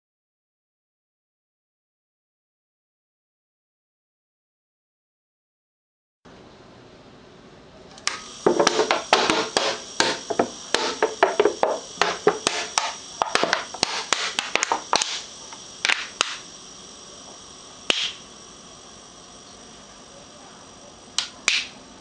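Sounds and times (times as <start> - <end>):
vacuum pump running: 7.9 - 22.0.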